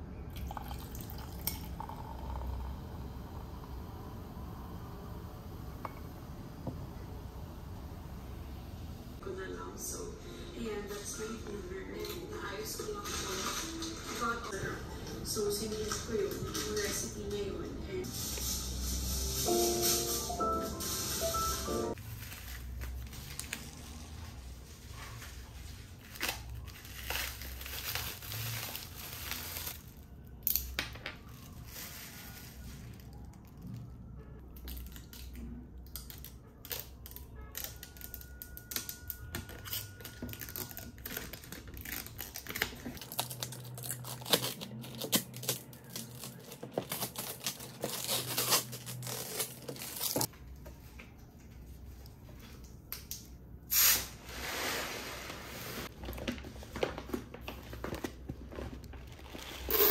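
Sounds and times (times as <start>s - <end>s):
plastic wrapping crinkling: 21.9s - 30.6s, 31.2s - 33.9s, 34.5s - 50.3s, 55.8s - 59.9s.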